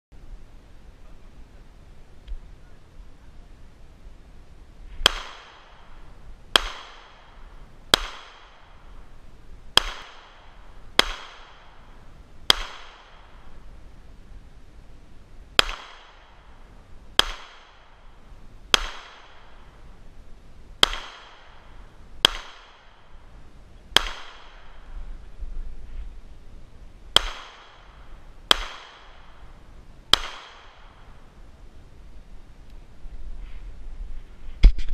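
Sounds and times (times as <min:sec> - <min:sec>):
pistol shots with echo: 0:05.0 - 0:08.9, 0:09.7 - 0:11.8, 0:12.5 - 0:13.6, 0:15.6 - 0:16.5, 0:17.2 - 0:18.0, 0:18.7 - 0:19.8, 0:20.8 - 0:23.3, 0:23.9 - 0:24.9, 0:27.2 - 0:31.2.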